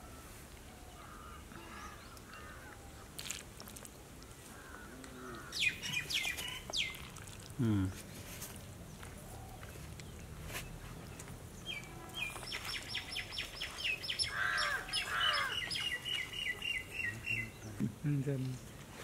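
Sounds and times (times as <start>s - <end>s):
lower fuller bird calls: 4.5s - 7.1s, 11.7s - 17.8s.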